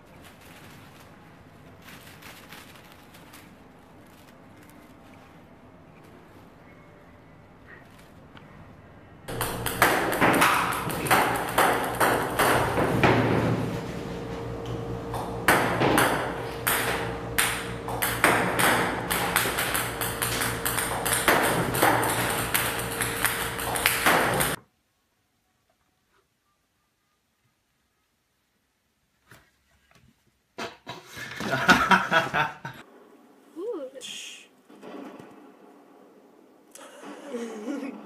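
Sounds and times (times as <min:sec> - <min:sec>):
steady hum: 0:08.2 - 0:24.6
ping-pong balls bouncing and clattering: 0:09.3 - 0:13.7, 0:15.1 - 0:24.6.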